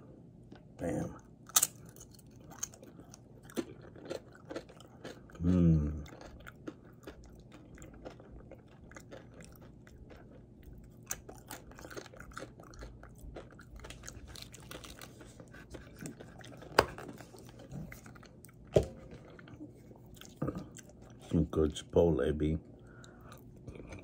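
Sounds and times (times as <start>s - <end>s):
person chewing crunchy chip: 1.4s - 21.2s.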